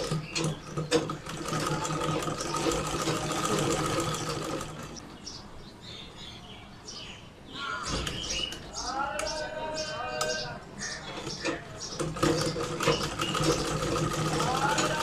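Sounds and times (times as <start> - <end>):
sewing machine stitching: 0.0 - 5.0, 11.4 - 15.0.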